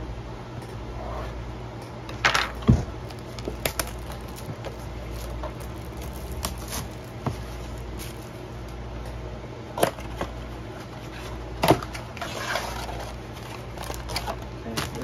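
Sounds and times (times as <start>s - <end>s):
cardboard flap rustling: 2.5s - 8.5s, 11.1s - 15.0s.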